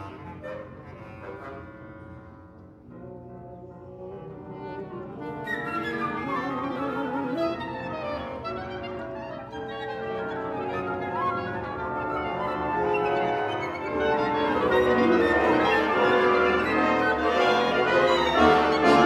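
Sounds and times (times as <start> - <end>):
wind ensemble playing: 0.0 - 19.0.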